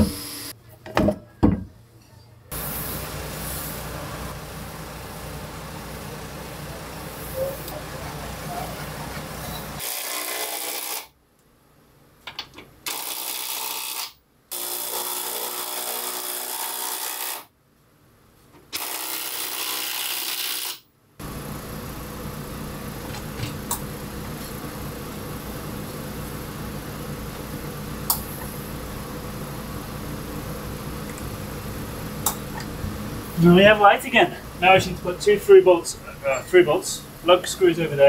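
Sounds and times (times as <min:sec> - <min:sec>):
cordless drill boring into wood: 0:12.9 - 0:17.4, 0:18.8 - 0:20.8.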